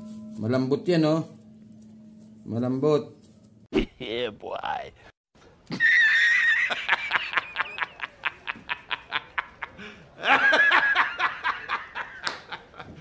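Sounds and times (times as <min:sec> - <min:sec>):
man laughing hard: 0:05.7 - 0:13.0.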